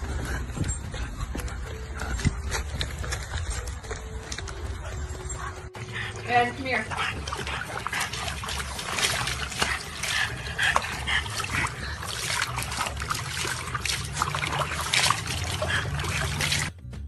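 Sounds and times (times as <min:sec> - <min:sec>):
water splashing in plastic tub: 0:06.3 - 0:16.8.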